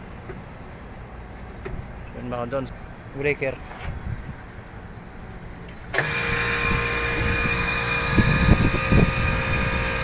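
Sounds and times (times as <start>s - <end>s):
air conditioning unit whining: 0.0s - 10.0s.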